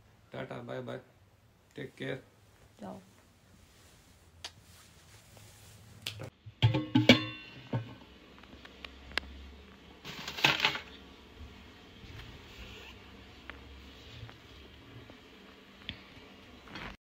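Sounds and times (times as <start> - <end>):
short rustle: 2.4 - 6.0
steel tin clattering: 10.0 - 10.9.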